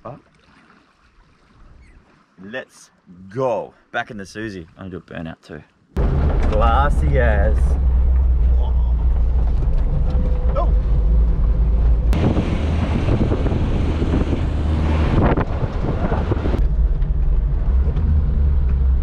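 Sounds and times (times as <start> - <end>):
wind buffeting microphone: 6.0 - 18.9
car engine rumble: 6.0 - 19.0.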